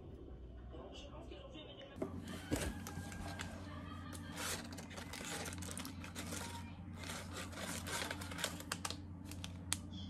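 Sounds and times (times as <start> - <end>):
tea sachets rustling and crinkling: 2.3 - 9.9.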